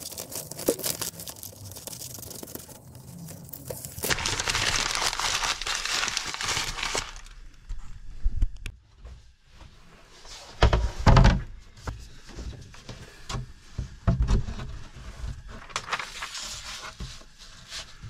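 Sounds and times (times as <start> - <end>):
paper crinkling and rustling: 0.0 - 7.4, 15.4 - 18.0.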